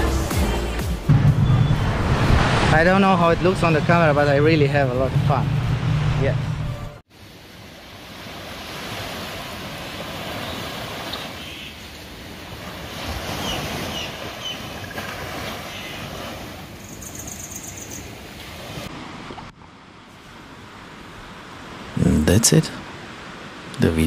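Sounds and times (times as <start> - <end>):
small waves washing onto beach: 7.1 - 22.0.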